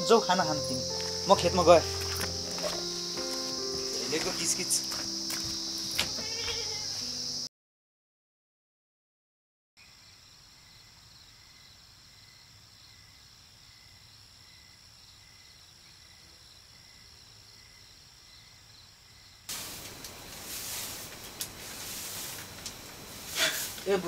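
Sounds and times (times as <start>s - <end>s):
insects chirping: 0.0s - 7.5s, 9.8s - 24.0s
broom sweeping earth floor: 0.2s - 7.2s, 19.5s - 24.0s.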